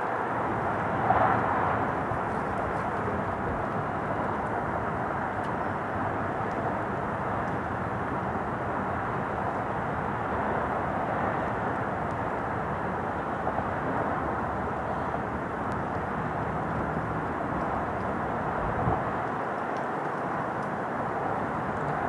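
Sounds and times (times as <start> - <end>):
distant jet engines roaring: 0.0 - 22.0.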